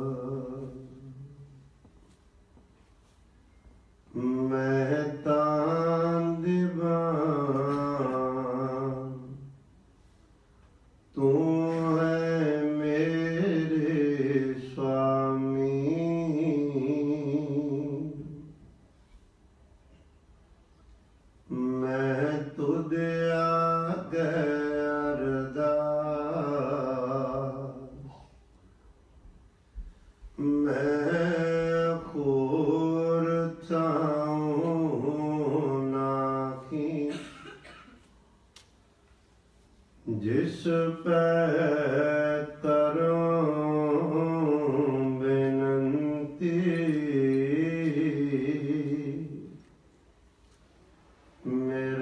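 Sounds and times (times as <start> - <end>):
man chanting: 0.0 - 1.6, 4.1 - 9.6, 11.1 - 18.6, 21.5 - 28.4, 30.4 - 37.6, 40.0 - 49.7, 51.4 - 52.0.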